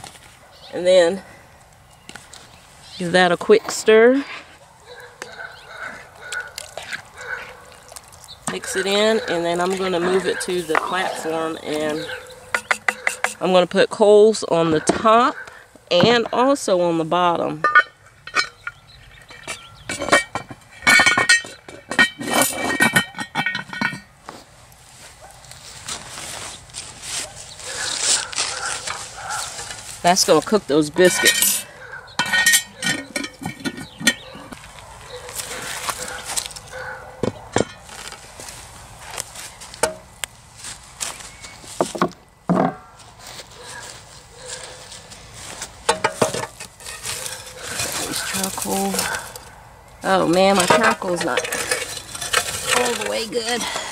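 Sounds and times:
iron lid clanking and scraping: 8.5s - 13.6s, 17.6s - 24.2s, 28.8s - 34.6s, 37.2s - 38.2s, 45.8s - 49.4s, 50.0s - 53.9s.

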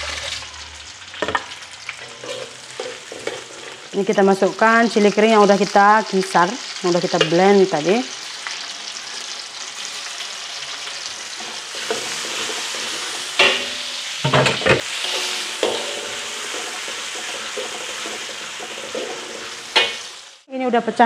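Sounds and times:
metal spatula stirring in wok: 0.0s - 4.0s, 9.0s - 20.4s
paste sizzling in hot oil: 0.0s - 20.5s.

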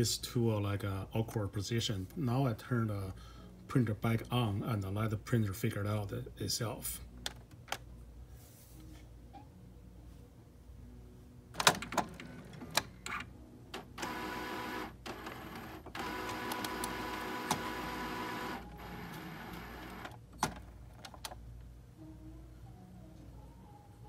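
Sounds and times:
printer carriage motor whirring: 11.6s - 20.6s
printer mechanical clicks: 13.8s - 21.4s.

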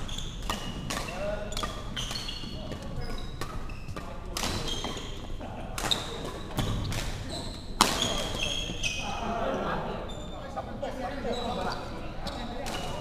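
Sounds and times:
shoes squeaking on wooden floor: 0.0s - 9.2s
racket hitting shuttlecock: 0.4s - 5.0s.

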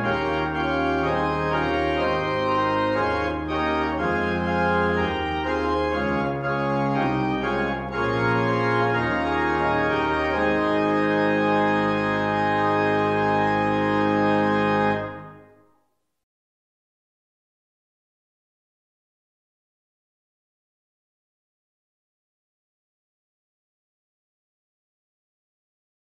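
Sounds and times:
church organ playing chords: 0.0s - 15.6s.

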